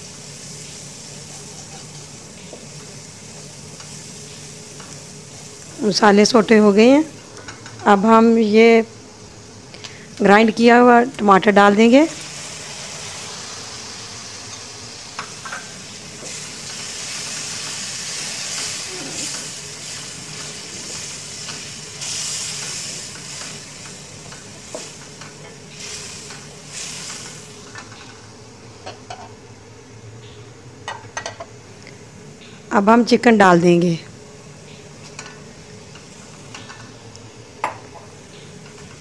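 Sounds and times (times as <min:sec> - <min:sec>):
tomato sizzling in hot oil: 0:00.0 - 0:08.6, 0:09.2 - 0:29.2.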